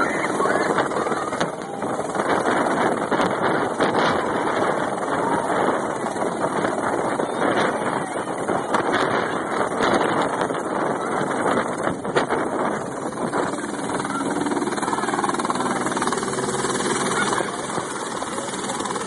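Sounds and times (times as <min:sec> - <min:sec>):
helicopter turbine and rotor: 0:00.0 - 0:19.0.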